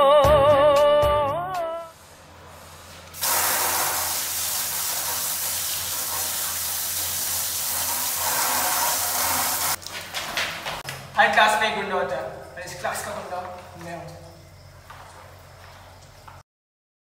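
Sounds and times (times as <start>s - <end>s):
person singing: 0.0s - 2.0s
tap water running into sink: 3.2s - 9.9s.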